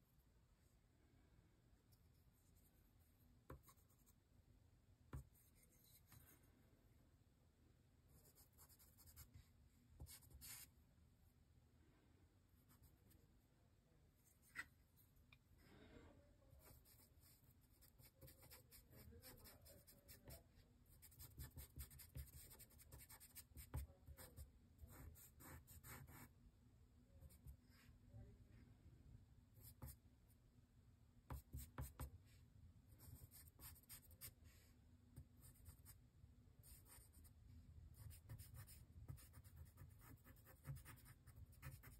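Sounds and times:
charcoal pencil scratching paper: 16.6 - 26.3, 31.3 - 32.1, 33.0 - 34.4, 38.0 - 41.9.

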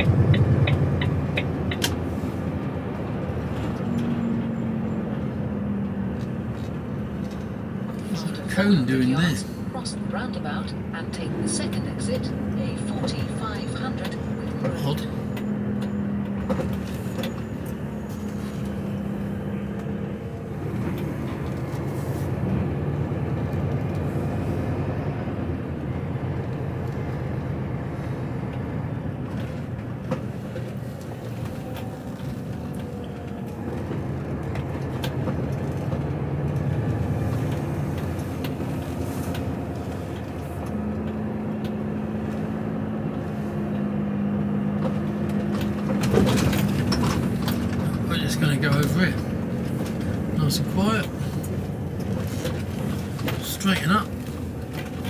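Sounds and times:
diesel lorry engine running: 0.0 - 55.0
road noise: 0.0 - 55.0.

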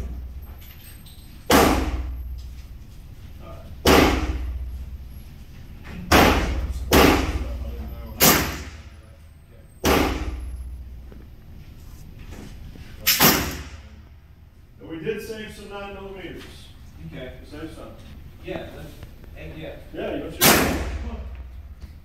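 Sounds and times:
gunshots echoing indoors: 1.5 - 2.2, 3.8 - 4.7, 6.1 - 7.6, 8.2 - 9.0, 9.8 - 10.8, 13.0 - 14.0, 20.4 - 21.5.

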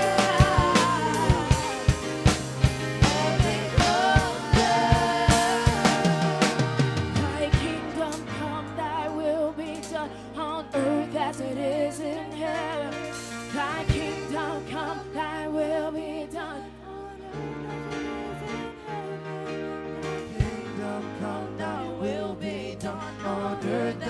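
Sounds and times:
drum hits: 0.0 - 7.9
worship band playing: 0.0 - 15.5, 18.1 - 24.0
person singing: 0.0 - 24.0.

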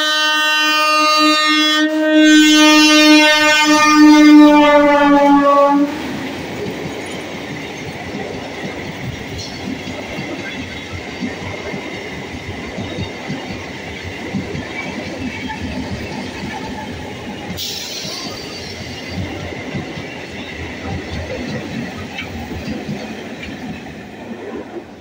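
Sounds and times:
train horn blaring: 0.0 - 6.3
train wheels clattering over rail joints: 6.2 - 24.8.

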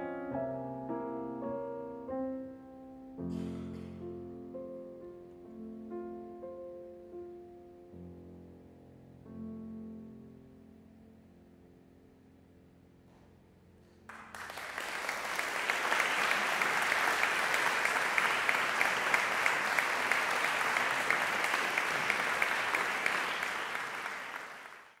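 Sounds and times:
audience applause: 14.1 - 25.0.

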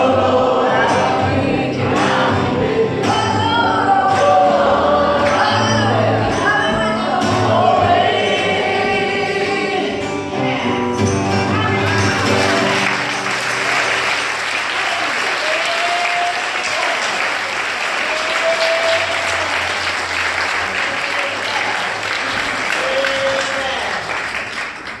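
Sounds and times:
congregation applauding: 11.6 - 25.0.

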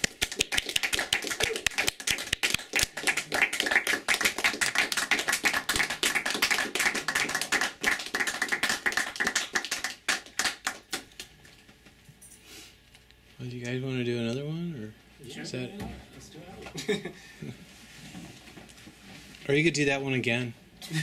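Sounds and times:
audience applauding: 0.0 - 11.3.

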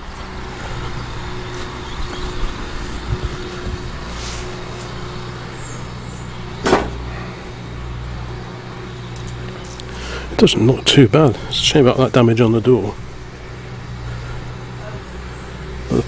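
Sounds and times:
vehicle engine humming: 0.0 - 16.0
sharp knock: 6.6 - 7.0.

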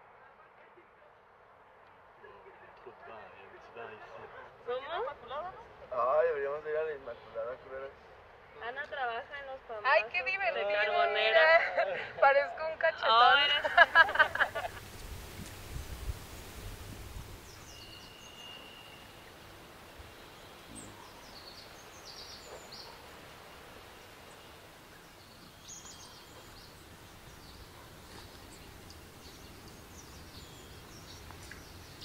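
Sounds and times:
soft background hiss: 1.0 - 32.0
high bird chirps: 17.4 - 19.4, 20.1 - 23.0.

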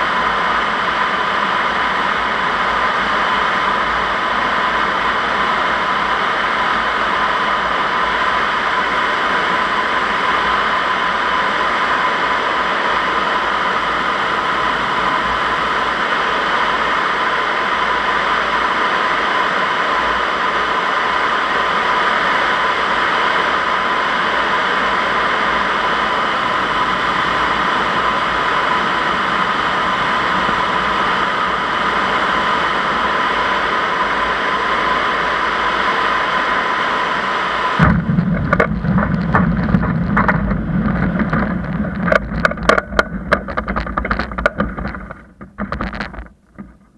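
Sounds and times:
airflow rushing over camera: 37.8 - 46.9.

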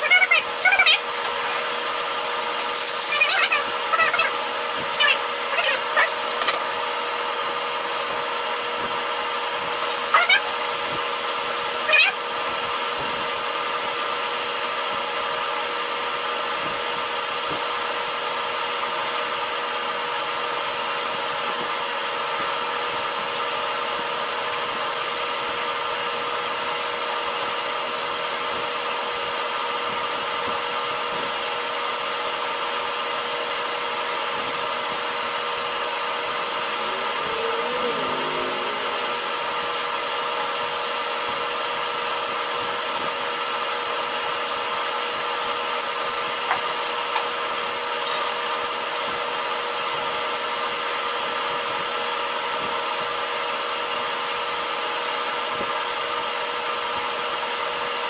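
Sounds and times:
machine drone: 35.0 - 41.9.

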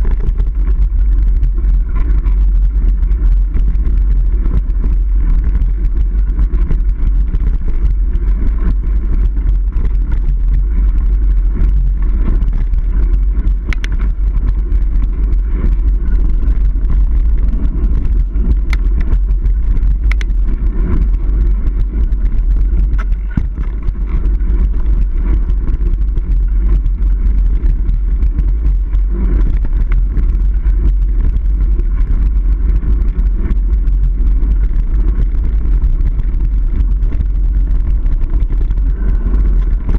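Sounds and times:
bike trail and wind rumble: 0.0 - 39.9
sharp clicks: 13.6 - 14.1, 19.8 - 20.4.

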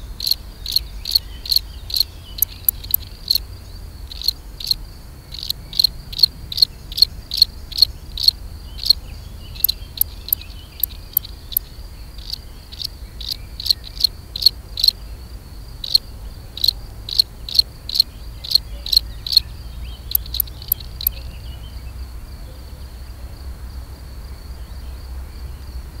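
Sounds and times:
cricket chirping: 0.0 - 26.0
faint continuous insect trill: 0.0 - 26.0.

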